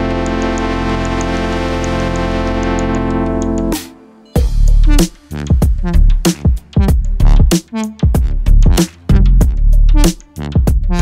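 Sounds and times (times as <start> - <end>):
held synth chord: 0.0 - 5.5
heavy bass beat: 0.0 - 11.0.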